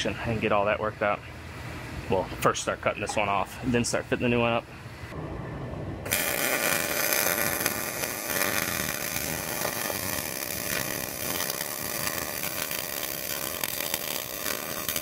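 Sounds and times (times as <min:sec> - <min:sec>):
welder arc crackling: 0:06.1 - 0:15.0.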